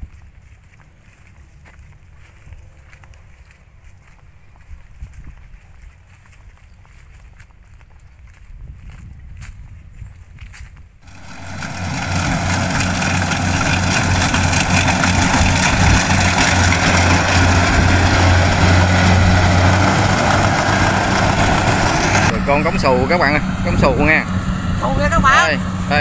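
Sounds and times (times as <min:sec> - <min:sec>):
footsteps on dirt path: 0:00.0 - 0:22.3
combine harvester running: 0:11.0 - 0:26.0.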